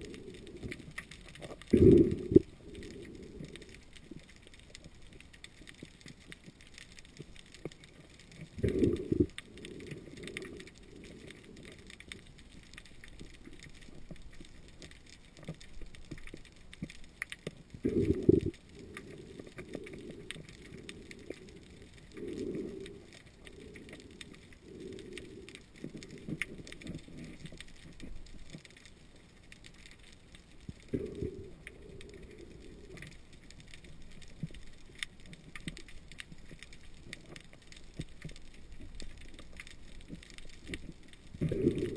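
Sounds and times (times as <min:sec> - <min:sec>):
underwater clicks and scrapes: 0:00.0 - 0:41.9.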